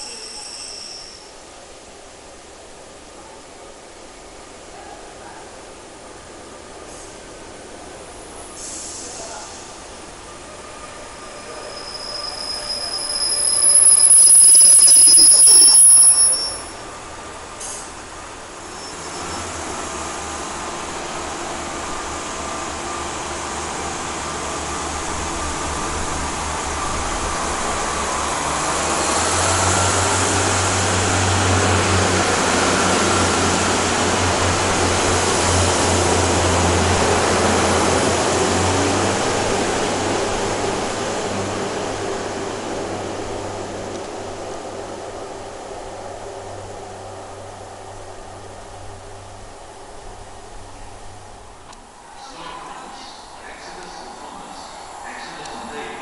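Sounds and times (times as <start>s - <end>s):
train wheels squealing: 0.0s - 1.4s, 10.4s - 16.9s, 18.6s - 19.7s.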